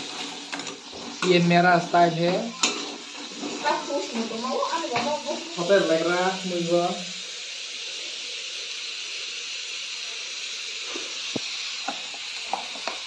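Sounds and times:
potatoes sizzling in a frying pan: 0.0 - 13.0.

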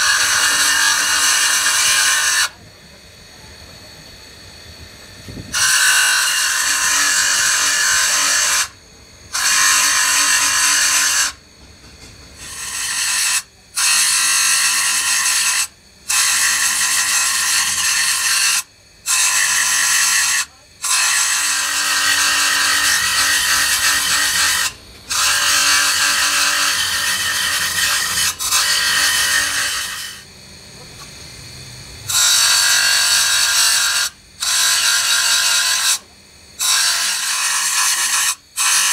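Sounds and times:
metal grinding on abrasive disc: 0.0 - 2.5, 9.4 - 11.4, 12.4 - 30.2
electric motor hum: 0.0 - 38.9.

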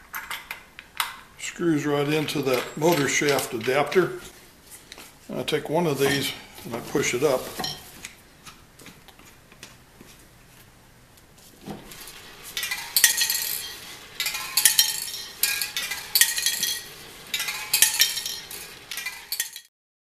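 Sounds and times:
spray cans clinking and rattling: 2.1 - 4.1, 6.0 - 8.0, 11.8 - 19.7.

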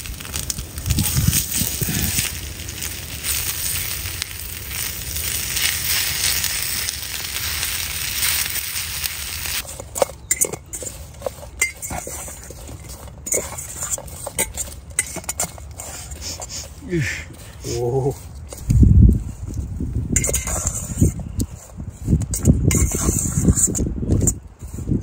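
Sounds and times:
potatoes sizzling in a pan: 0.0 - 9.6
utensil clinking in a steel bowl: 9.6 - 15.8.

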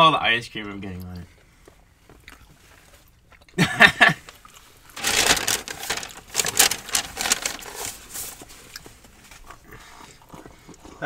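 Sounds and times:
paper packaging crinkling: 4.9 - 8.8.

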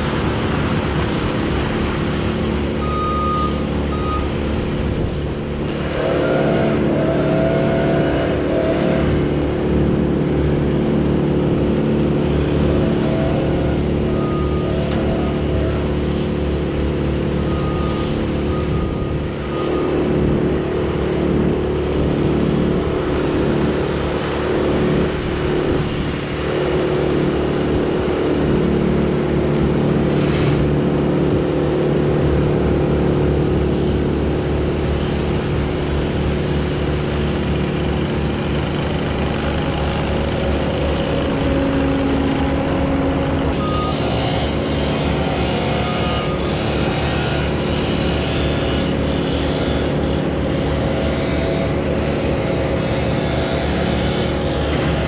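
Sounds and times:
heavy equipment engines droning: 0.0 - 55.0.

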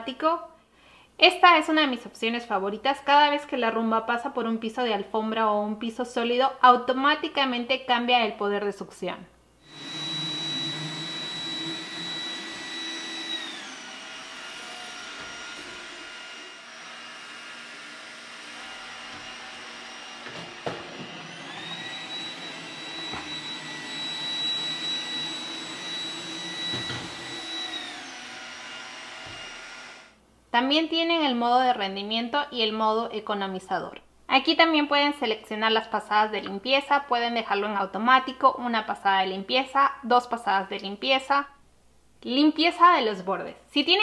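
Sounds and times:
robot vacuum motor whine: 9.6 - 30.2.

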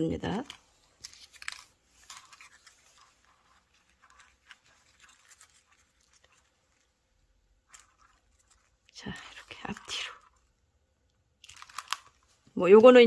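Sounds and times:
paper rustling: 0.3 - 10.5, 11.4 - 13.0
plastic beads ticking: 7.6 - 13.0.

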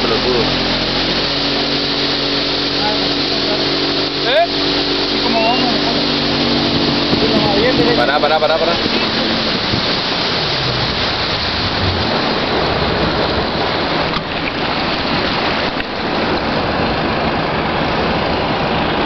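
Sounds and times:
motorboat engine running: 0.0 - 19.0
wind and water rushing: 0.0 - 19.0.

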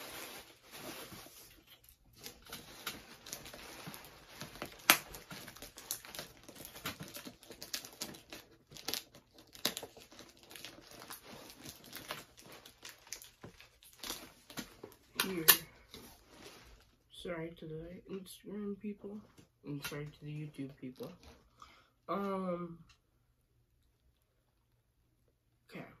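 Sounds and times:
cardboard package tearing: 0.0 - 15.7
packaging crinkling: 0.0 - 16.9.

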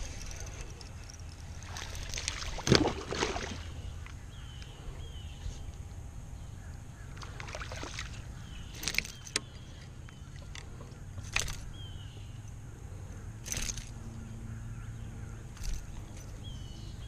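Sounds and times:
fish splashing and thrashing: 0.0 - 4.0, 7.2 - 10.6, 13.4 - 14.0
wind and water rumble: 0.0 - 17.0.

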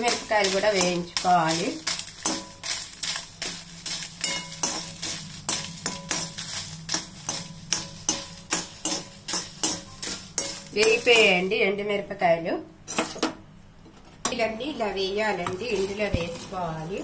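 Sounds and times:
steel spatula scraping metal pan: 0.0 - 11.4.

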